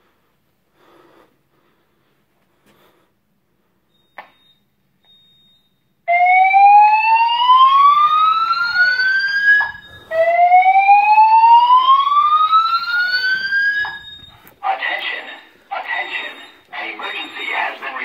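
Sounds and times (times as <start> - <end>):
fire alarm whoop tone: 4.0 - 18.0.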